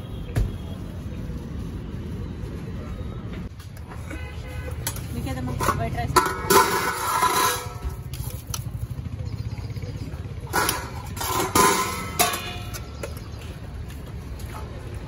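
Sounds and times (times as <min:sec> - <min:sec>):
low traffic rumble: 0:00.0 - 0:15.0
steel spoons and lids clinking: 0:05.6 - 0:08.0, 0:10.5 - 0:13.0.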